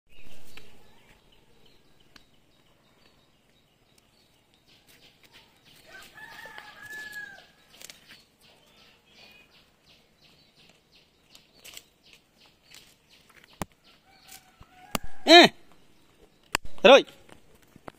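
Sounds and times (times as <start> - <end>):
rooster crowing: 5.9 - 7.6.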